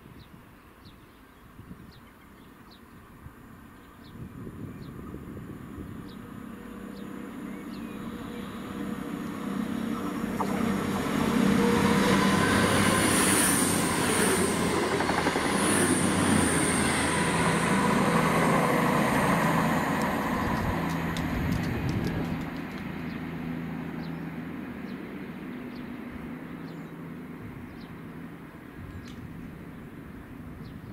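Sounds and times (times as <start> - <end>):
diesel train passing: 4.4 - 30.9
wheel-on-rail noise: 6.3 - 23.3.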